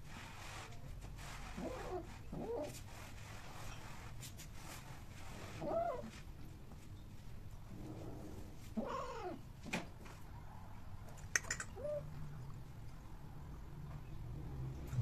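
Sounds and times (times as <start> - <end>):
cat calling: 8.8 - 9.4.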